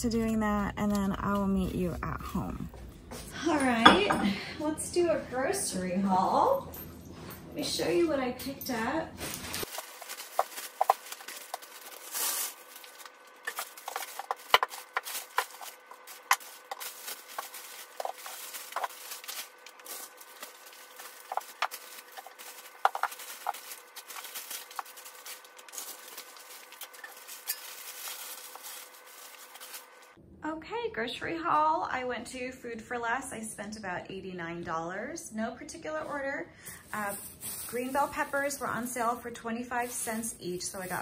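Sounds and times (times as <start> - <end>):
shopping bags rustling: 9.2 - 30.2, 36.8 - 39.2, 39.8 - 41.0.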